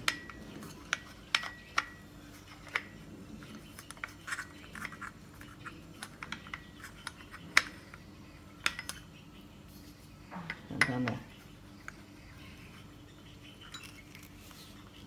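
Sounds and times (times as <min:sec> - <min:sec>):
silencer screwing clicks and scratches: 0:00.1 - 0:08.0.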